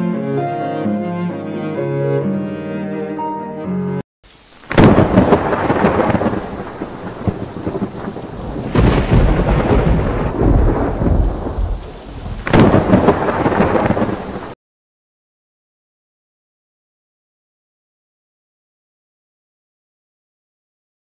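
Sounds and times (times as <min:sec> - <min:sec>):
rain: 0:04.2 - 0:14.6
thunder: 0:04.7 - 0:14.6.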